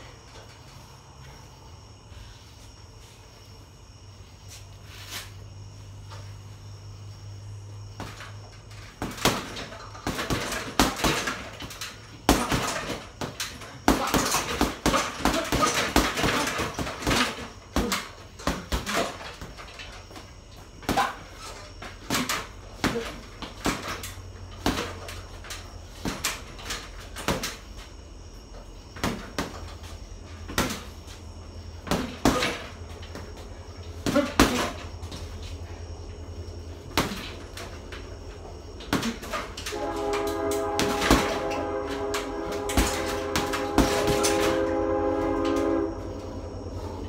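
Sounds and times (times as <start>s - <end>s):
gloves punching heavy bag: 9.0s - 19.9s.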